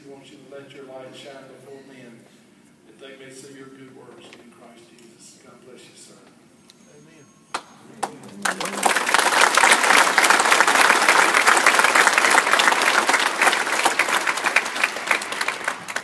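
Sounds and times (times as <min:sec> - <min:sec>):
congregation applauding: 0:07.5 - 0:16.0.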